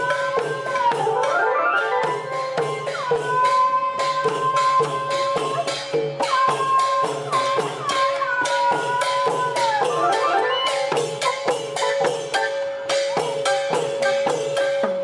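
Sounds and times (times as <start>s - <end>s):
wind instrument melody: 0.0s - 5.6s
drums: 0.0s - 15.0s
hand cymbals: 0.0s - 15.0s.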